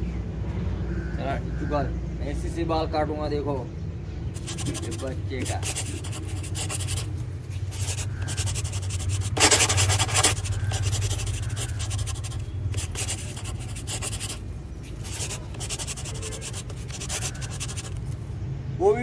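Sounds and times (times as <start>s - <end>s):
steady low hum: 3.8s - 18.4s.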